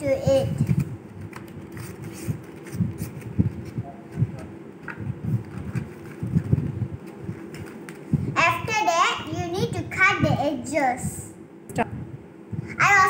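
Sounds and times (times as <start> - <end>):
paper rustling: 0.6 - 8.1.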